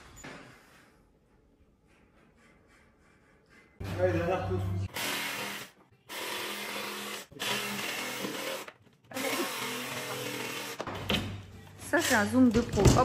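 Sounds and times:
jigsaw cutting plasterboard: 4.9 - 10.8.

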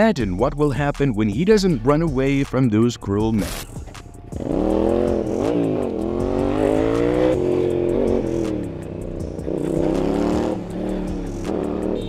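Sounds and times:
motorcycle engine accelerating: 3.8 - 12.0.

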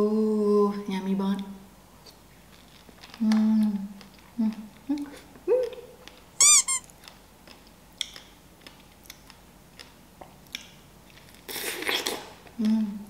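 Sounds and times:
mouth clicks while chewing: 1.4 - 12.8
sharp high squeaks: 6.4 - 6.9.

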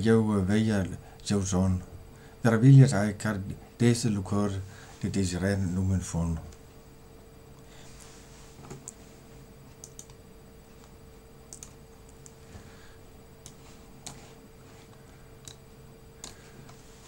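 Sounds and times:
low electrical hum: 0.0 - 17.0
faint clicks and taps: 16.2 - 16.8.

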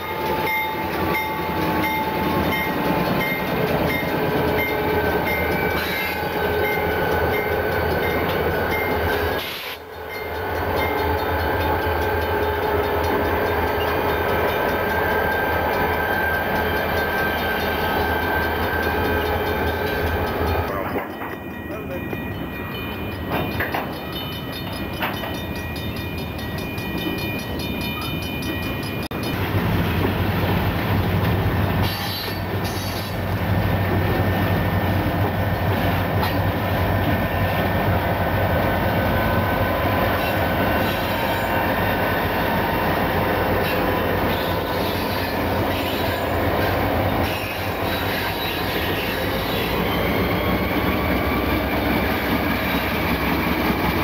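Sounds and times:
train wheel squeal: 0.0 - 30.2, 31.7 - 54.0
diesel locomotive engines droning: 0.0 - 54.0
wheels clattering on rails: 0.0 - 54.0.

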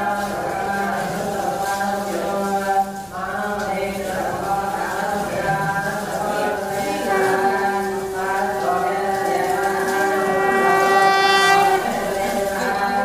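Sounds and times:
men chanting: 0.0 - 13.0
conch shell blown: 7.0 - 12.8.

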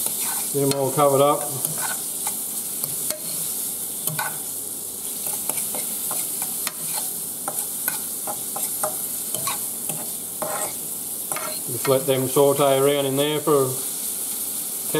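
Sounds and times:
fork scraping a pan: 0.0 - 4.5, 5.1 - 12.0
food sizzling in butter: 0.0 - 14.9.

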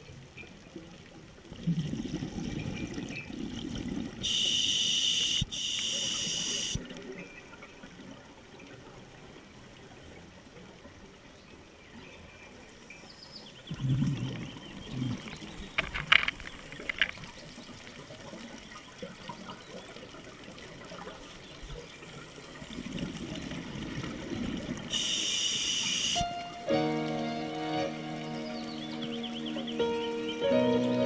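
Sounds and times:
diver's bubbles gurgling underwater: 1.6 - 4.2, 13.7 - 15.8
brief hiss: 4.2 - 6.8, 24.9 - 26.3.

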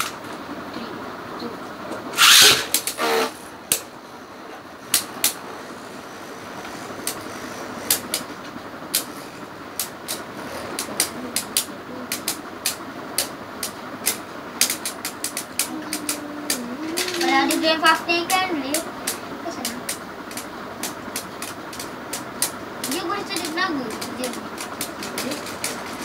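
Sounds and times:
spinning tops whirring: 2.0 - 4.0, 4.8 - 26.0
spinning tops clicking: 9.8 - 26.0.

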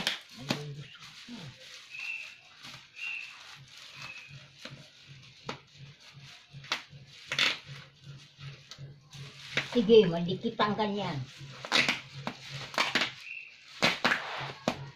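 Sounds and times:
packing tape tearing: 0.0 - 5.6, 6.3 - 7.9, 11.5 - 14.9
plastic wrapping crinkling: 0.0 - 14.9.

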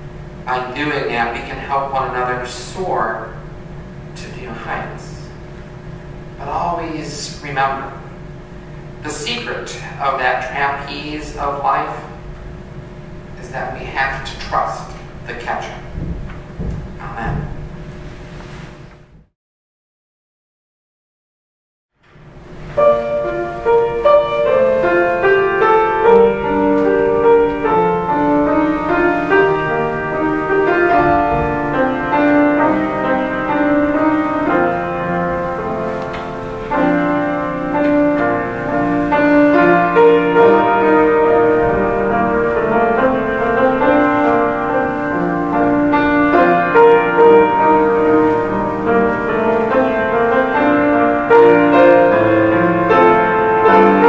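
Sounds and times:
solo grand piano: 22.0 - 54.0.

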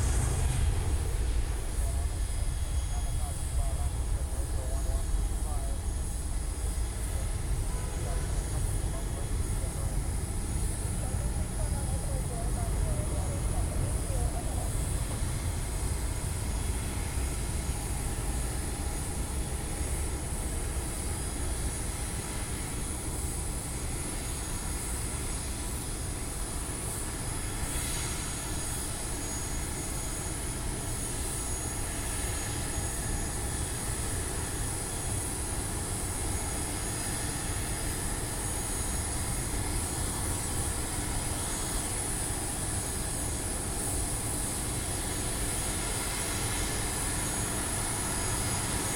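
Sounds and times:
jet aircraft engine whine: 0.0 - 48.9.

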